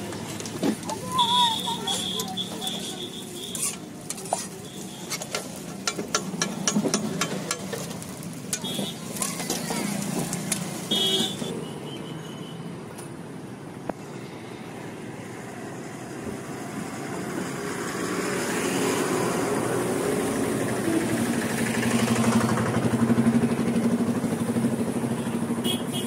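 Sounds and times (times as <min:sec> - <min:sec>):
vehicle engine running: 0:20.2 - 0:25.8.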